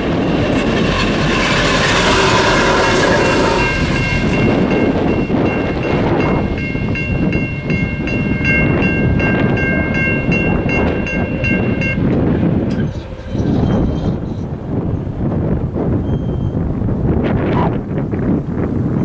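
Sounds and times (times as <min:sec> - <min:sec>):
passing train rumble: 0:00.0 - 0:19.0
electronic crossing bell ringing: 0:01.4 - 0:12.2.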